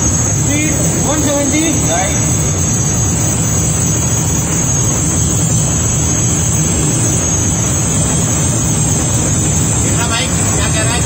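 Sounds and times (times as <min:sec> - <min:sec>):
deep rumble of train wheels: 0:00.0 - 0:11.0.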